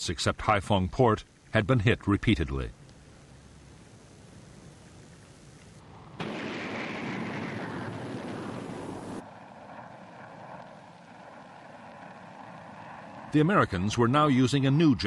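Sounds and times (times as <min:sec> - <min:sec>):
jet rushing roar: 0:05.3 - 0:15.0.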